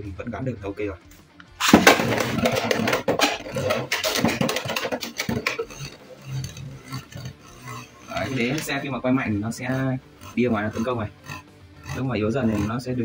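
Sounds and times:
spinning top rattling in plastic bowl: 1.6 - 9.0.

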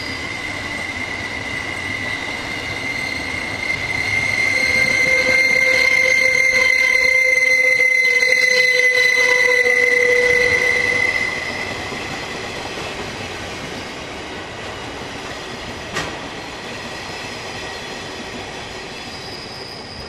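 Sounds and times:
faint high wheel squeal: 0.0 - 11.9, 18.8 - 20.0
steel wheels rumbling on rail: 0.0 - 20.0.

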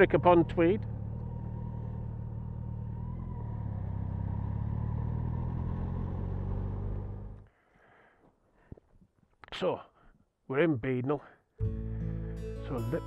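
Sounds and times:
motorcycle engine running: 0.0 - 7.4
road and wind noise: 0.0 - 7.5.

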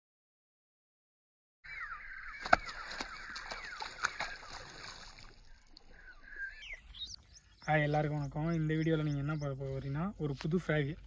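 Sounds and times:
birds calling falling notes: 1.7 - 9.6.

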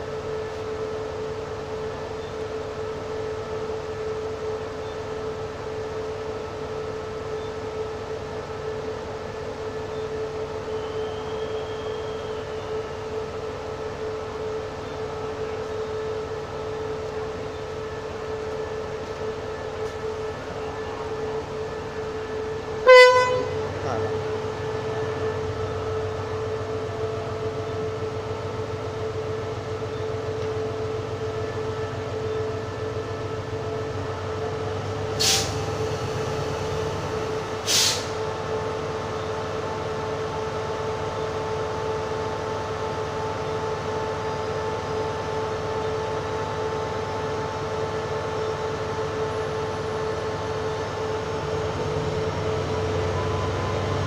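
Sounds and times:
locomotive engine idling: 12.5 - 54.0
short sharp hisses: 35.2 - 35.6, 37.7 - 38.2.

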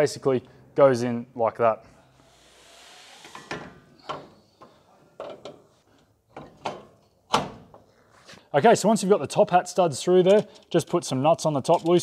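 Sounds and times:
metallic knocks and clunks: 3.4 - 5.7, 6.3 - 7.9.

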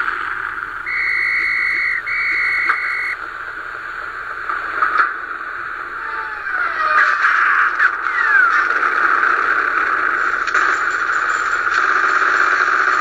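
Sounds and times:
steady hiss: 0.0 - 6.9
long steady tones: 0.6 - 4.3
short clicks: 0.9 - 3.2.

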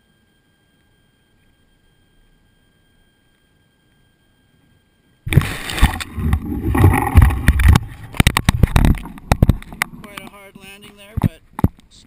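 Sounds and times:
muffled handling rumble: 5.9 - 12.0.

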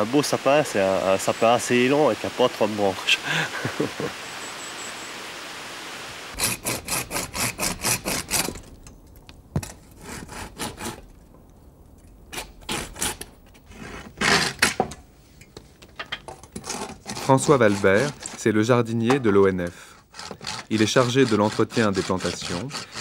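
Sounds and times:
pruning saw cutting branches: 6.4 - 8.8, 16.6 - 18.6, 20.0 - 23.0.

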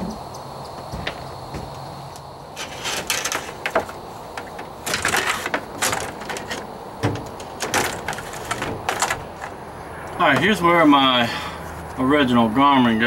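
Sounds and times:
cable scraping and rustling: 2.5 - 10.8.

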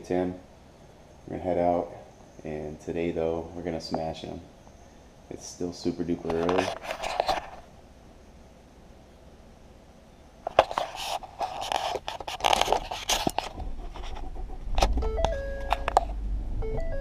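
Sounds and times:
car engine starting and rumbling: 14.4 - 17.0
simple tune of held notes: 15.0 - 17.0.

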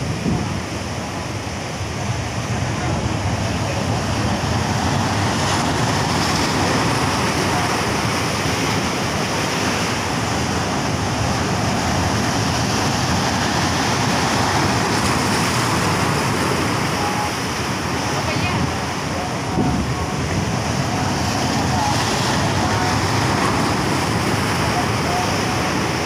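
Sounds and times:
waves breaking over rocks: 0.0 - 26.0.

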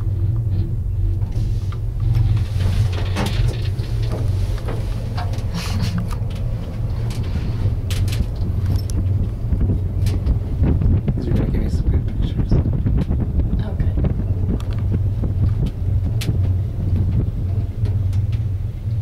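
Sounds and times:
gondola cabin rumble: 0.0 - 19.0
light clicks and rattles: 0.4 - 13.2.

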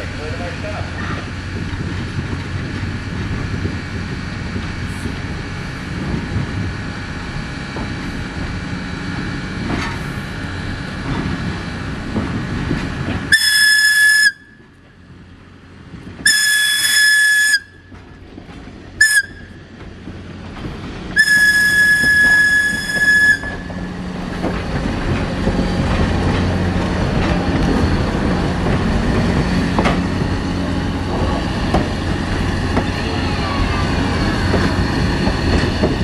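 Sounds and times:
train rumbling: 0.0 - 36.0
steam locomotive whistle: 13.3 - 14.7, 16.2 - 17.9, 19.0 - 19.6, 21.2 - 23.7.

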